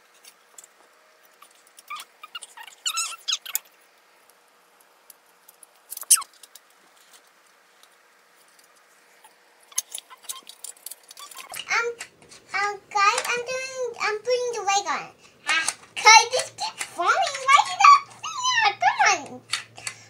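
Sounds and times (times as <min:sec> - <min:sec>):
plastic squeaks and creaks: 0:01.3 - 0:03.7, 0:05.9 - 0:06.5, 0:09.7 - 0:12.1
plastic toy pieces clicking: 0:13.1 - 0:13.4, 0:15.5 - 0:17.8, 0:19.3 - 0:20.0.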